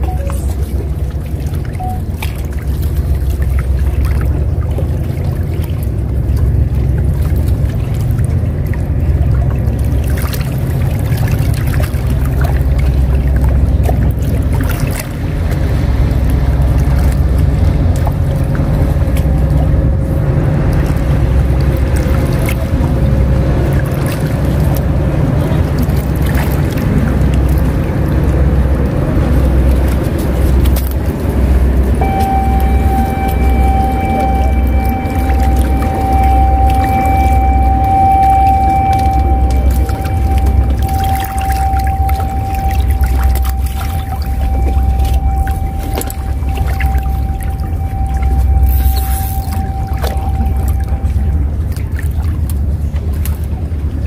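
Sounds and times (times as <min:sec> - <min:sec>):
steady single tone: 0:00.0 - 0:00.9, 0:01.7 - 0:02.3, 0:32.0 - 0:52.0
outdoor water noise: 0:00.0 - 0:54.0.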